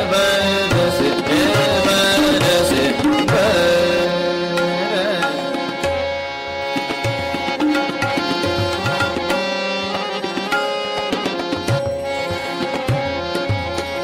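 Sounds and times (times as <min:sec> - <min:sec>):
man singing: 0:00.0 - 0:06.0
harmonium notes: 0:00.0 - 0:14.0
tabla playing: 0:00.0 - 0:14.0.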